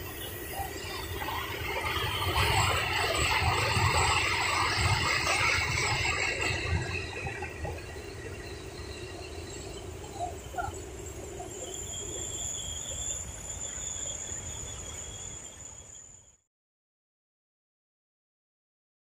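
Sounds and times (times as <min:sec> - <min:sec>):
thin high steady tone: 0:00.0 - 0:16.4
bird chirps: 0:07.5 - 0:16.2.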